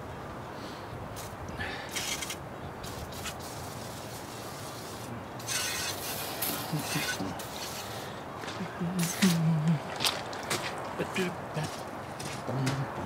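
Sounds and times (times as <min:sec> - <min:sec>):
short hissing rush: 0:01.2 - 0:08.3
hand handling and rubbing noises: 0:01.2 - 0:13.0
small mechanical sounds: 0:01.9 - 0:08.0.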